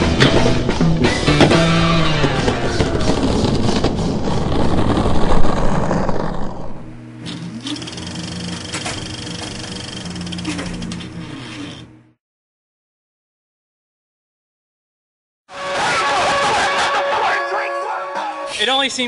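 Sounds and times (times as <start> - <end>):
loud rock music: 0.0 - 4.2.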